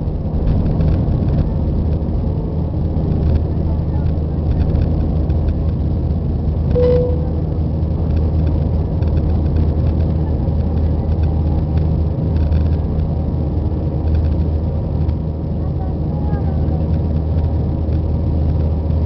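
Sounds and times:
aircraft cabin engine rumble: 0.0 - 19.0
brief cabin tone: 6.7 - 7.6.

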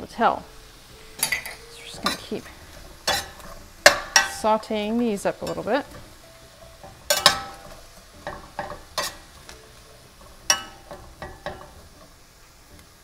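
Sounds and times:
vegetables sizzling: 0.0 - 13.0
utensil clinking against pan: 2.9 - 4.6, 5.4 - 12.1.

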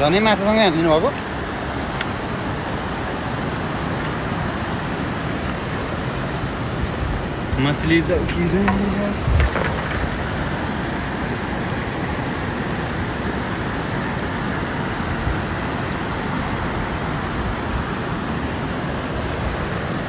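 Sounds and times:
mountain river rushing: 0.0 - 20.0.

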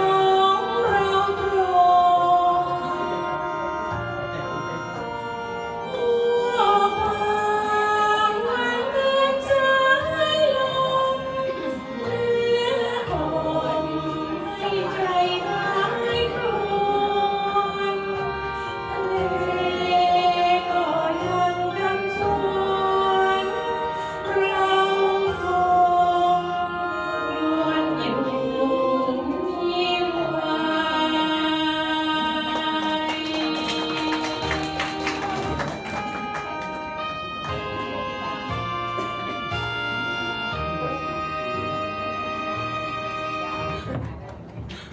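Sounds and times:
woman singing into microphone: 0.0 - 3.4, 5.8 - 34.8
karaoke backing track: 0.0 - 44.9.

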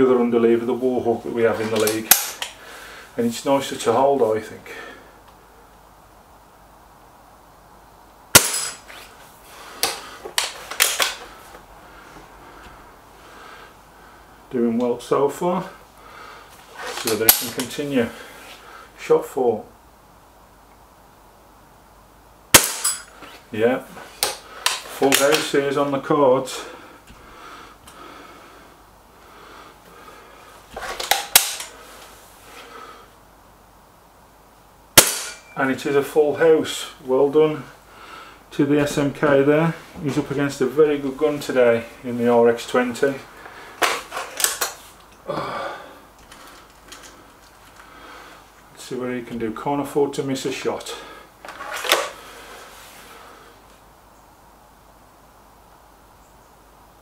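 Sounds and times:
air rifle handling noise: 1.7 - 2.6, 8.4 - 9.1, 9.8 - 11.4, 22.6 - 23.4, 24.1 - 25.5, 30.8 - 31.8, 35.0 - 35.5, 43.8 - 45.2, 51.4 - 52.2
air rifle shot: 8.3 - 8.8, 22.6 - 23.0, 35.0 - 35.4
metallic clicks of rifle cocking: 9.8 - 11.2, 30.9 - 31.8, 44.3 - 45.2.

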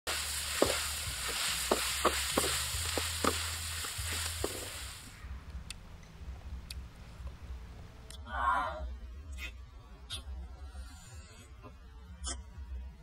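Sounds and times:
food sizzling in a wok: 0.1 - 5.2.

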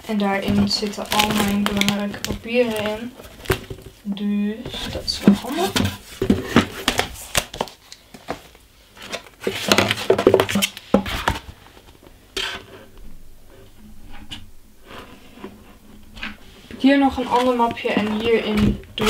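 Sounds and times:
items rustling in a desk drawer: 0.0 - 4.0.

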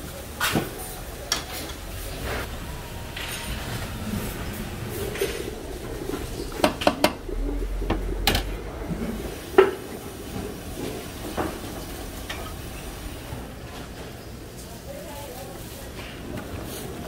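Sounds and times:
steady background noise: 0.0 - 17.0
metal pots and utensils clinking: 2.4 - 7.3.

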